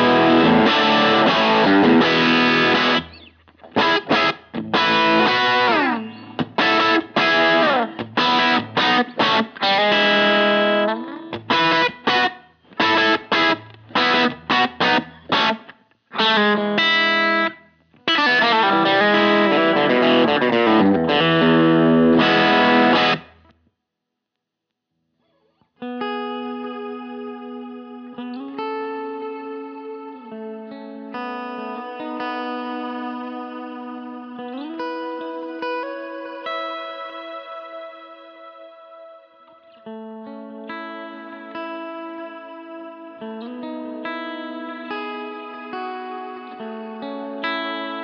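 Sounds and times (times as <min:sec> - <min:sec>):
distorted electric guitar: 0:00.0 - 0:23.5.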